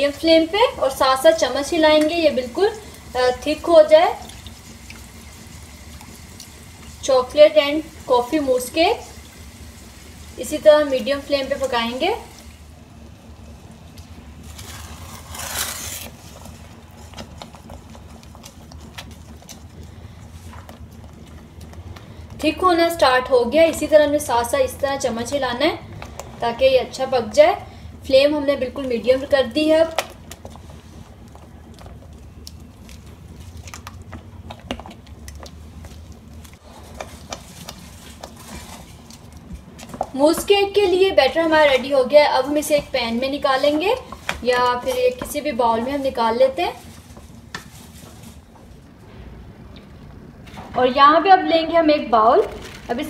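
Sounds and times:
low steady hum: 0.0s - 53.0s.

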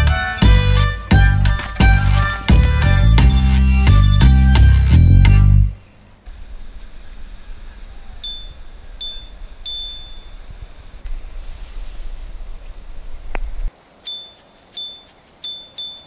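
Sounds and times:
low wind rumble on microphone: 4.1s - 13.7s.

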